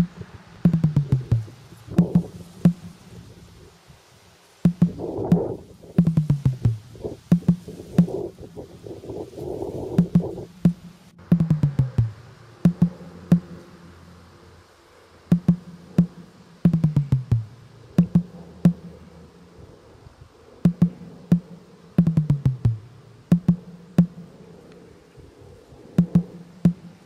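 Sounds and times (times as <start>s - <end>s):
electronic drum pattern: 0.0s - 3.0s, 4.6s - 8.3s, 9.8s - 13.7s, 15.3s - 19.1s, 20.6s - 24.2s, 26.0s - 27.0s.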